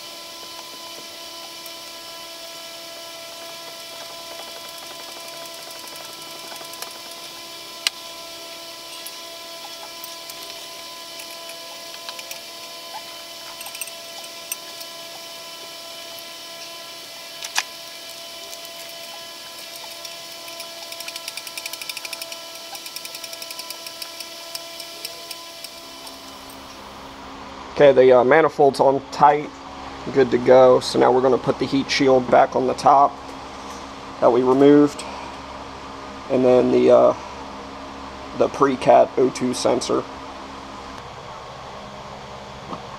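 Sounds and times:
steady hum: 0.0 - 42.9
ratchet clicking: 3.5 - 8.0, 8.8 - 15.3, 16.0 - 26.8.

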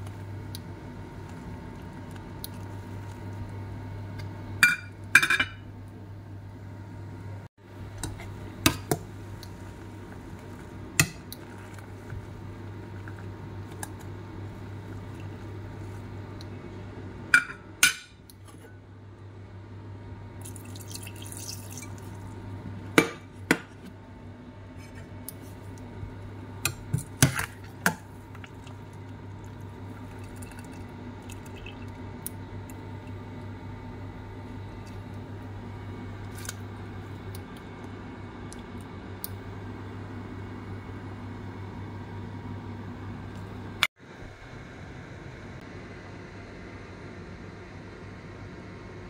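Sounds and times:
water boiling in pot: 0.0 - 5.2, 7.6 - 18.4, 20.2 - 23.4, 25.3 - 41.8.

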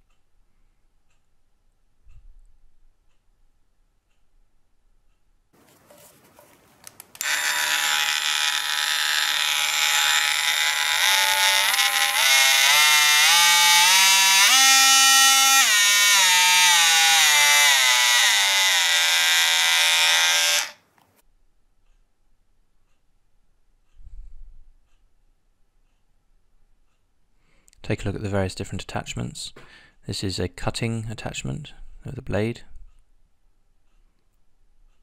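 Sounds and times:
oscillating multi-tool buzzing: 7.2 - 20.8.

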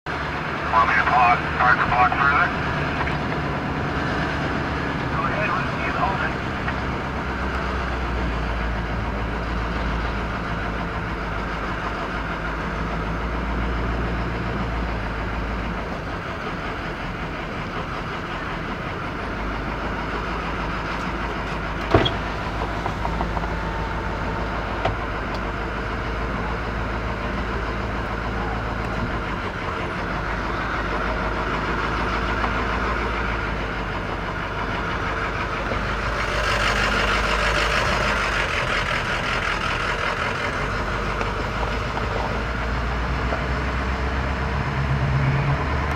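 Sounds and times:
fire engine rumbling: 0.0 - 45.9.

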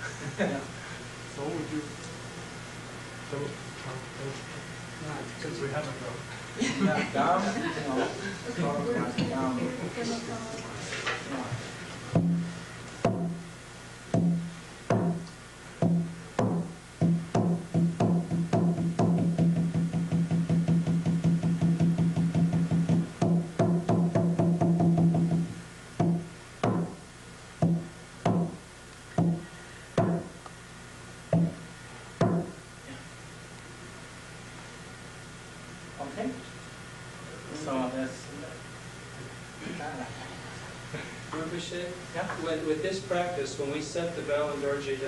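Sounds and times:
ritual drum beats and roll: 12.2 - 13.5, 14.1 - 27.0, 27.6 - 28.6, 29.2 - 30.4.

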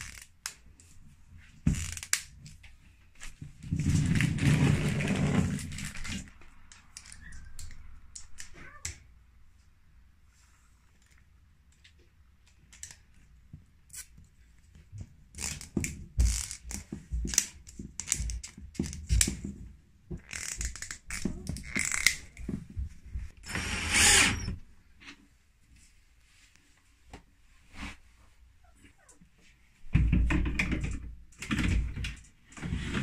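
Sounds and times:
plastic fittings clicking and rattling: 15.3 - 19.5, 20.1 - 22.5.

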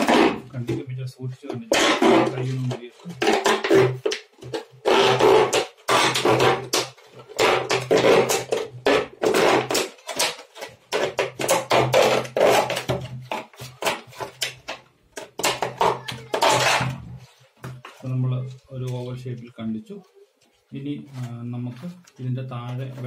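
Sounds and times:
plastic bottle crackling: 1.6 - 19.0.

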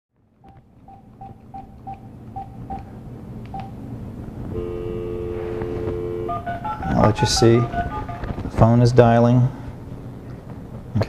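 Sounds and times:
two-tone dial tone: 4.5 - 8.3
telephone keypad beeps: 4.6 - 8.0.

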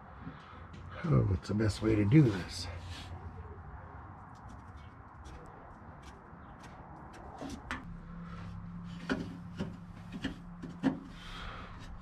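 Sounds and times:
steady low hum: 7.6 - 12.0.

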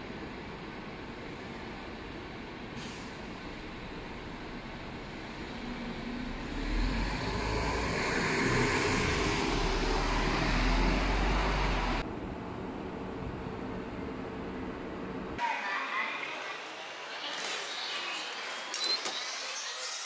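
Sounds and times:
bus engine rumble: 0.0 - 15.4
steady background noise: 0.0 - 20.0.

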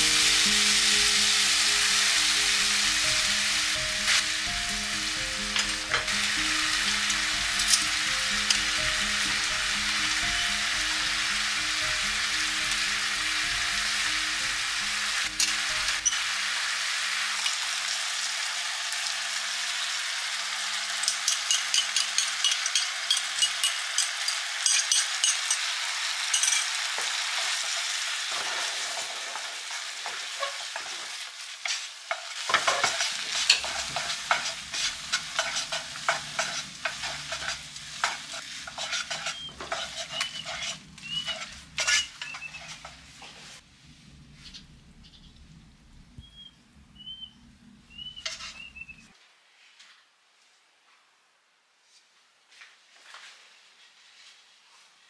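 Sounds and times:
food sizzling in a skillet: 0.0 - 43.6, 47.9 - 48.9
tongs clicking and scraping: 21.0 - 25.7, 26.3 - 26.7, 31.6 - 43.0, 48.2 - 48.7.

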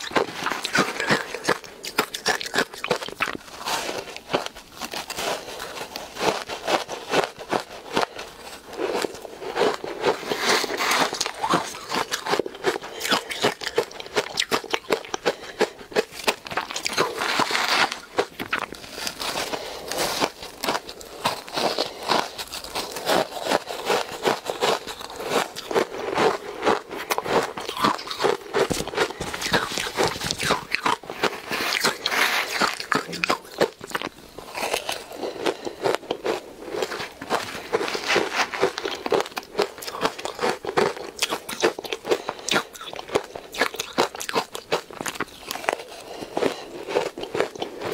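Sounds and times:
chewing crunchy ice: 0.0 - 47.9.

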